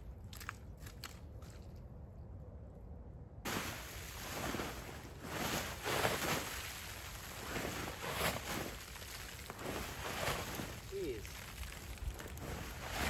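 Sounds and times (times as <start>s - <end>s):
rustling of camping gear and leaves: 3.5s - 13.0s.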